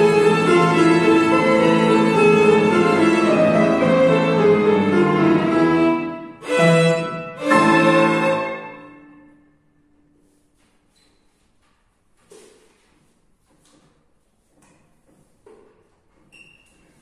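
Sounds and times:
violin: 0:00.0 - 0:09.3
piano: 0:00.0 - 0:11.0.

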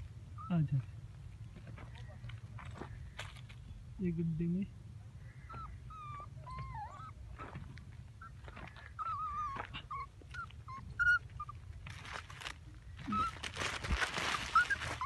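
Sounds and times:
puppy whimpering: 0:05.5 - 0:07.6, 0:08.2 - 0:11.7, 0:13.1 - 0:13.5, 0:14.3 - 0:15.0
rustle: 0:07.0 - 0:15.0.

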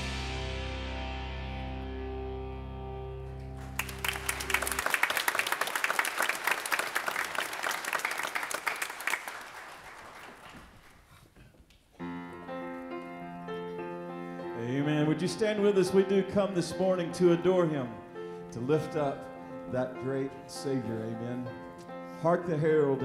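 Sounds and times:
congregation applauding: 0:03.4 - 0:11.2
instrumental music: 0:12.0 - 0:23.0.

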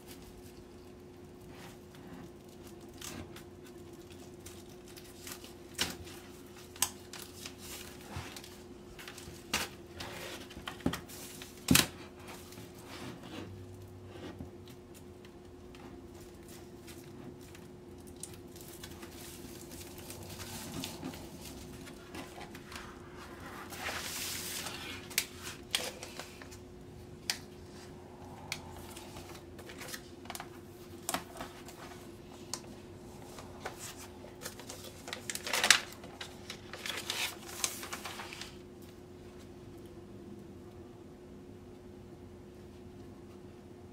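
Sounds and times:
plastic sleeves crinkling: 0:00.0 - 0:13.9, 0:14.6 - 0:38.9
faint steady hum: 0:00.0 - 0:43.9.

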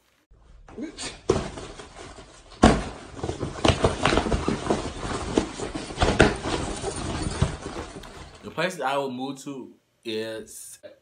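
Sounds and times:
scuffling thumps and knocks: 0:00.6 - 0:08.5.

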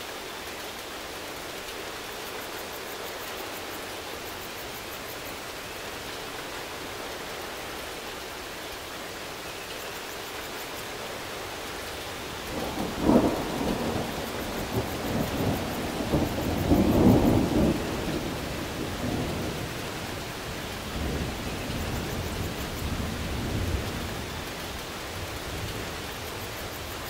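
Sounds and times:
steady rain: 0:00.0 - 0:27.0
low rolling thunder: 0:12.4 - 0:26.8.

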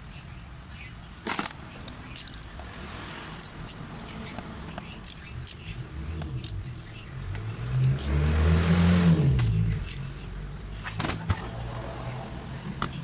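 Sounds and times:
vehicle engine revving: 0:05.7 - 0:10.1.

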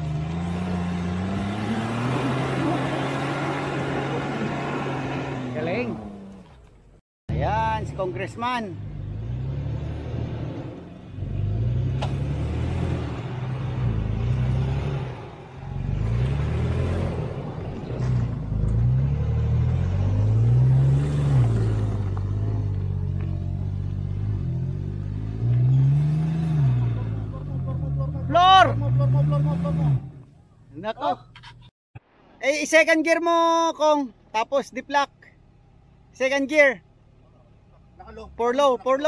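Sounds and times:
engine revving: 0:00.0 - 0:06.5, 0:07.3 - 0:30.4.

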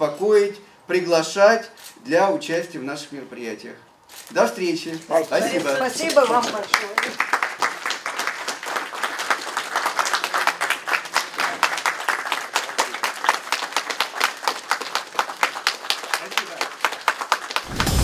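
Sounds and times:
people applauding: 0:05.4 - 0:18.0.

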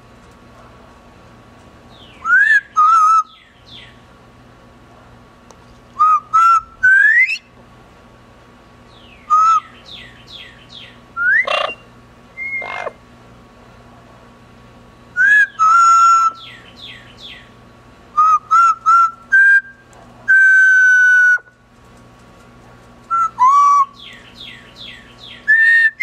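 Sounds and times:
parrot whistling: 0:02.2 - 0:03.3, 0:11.2 - 0:11.8, 0:12.4 - 0:13.0.

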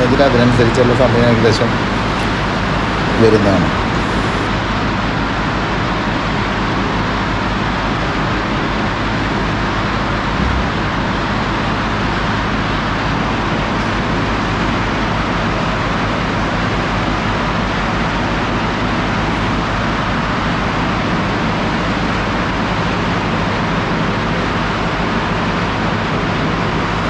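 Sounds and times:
low hum: 0:00.0 - 0:04.5, 0:09.3 - 0:13.0
industrial machinery din: 0:00.0 - 0:04.6, 0:09.1 - 0:13.5.

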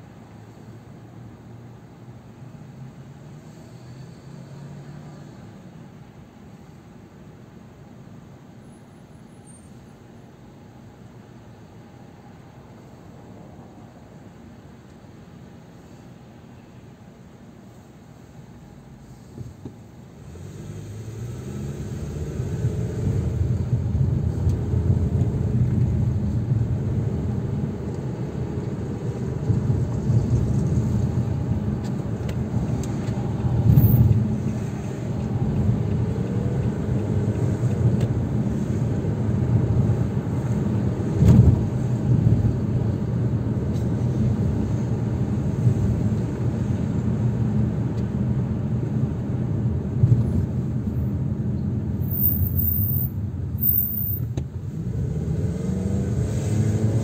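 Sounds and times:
car driving rumble: 0:17.7 - 0:57.0.

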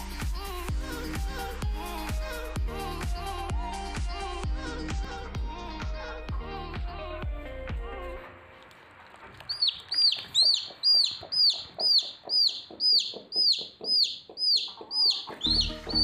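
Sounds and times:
chick peeping: 0:09.4 - 0:16.0.

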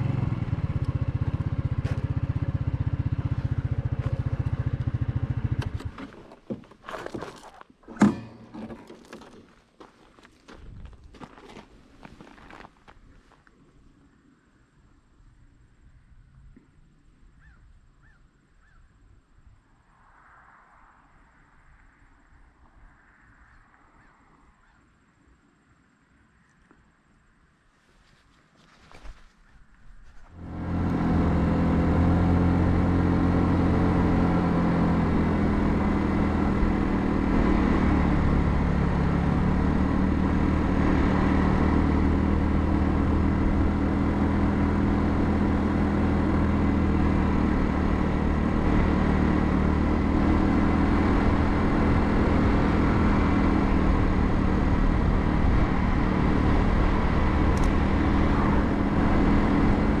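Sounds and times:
scooter engine running: 0:00.0 - 0:09.4, 0:30.3 - 1:00.0
wind and road noise: 0:00.0 - 1:00.0.

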